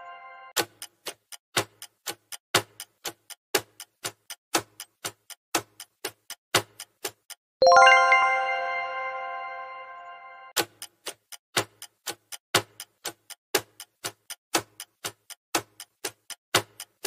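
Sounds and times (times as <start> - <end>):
bell-like chime: 0.0 - 0.5, 7.6 - 10.6
countdown timer ticking: 0.7 - 11.0.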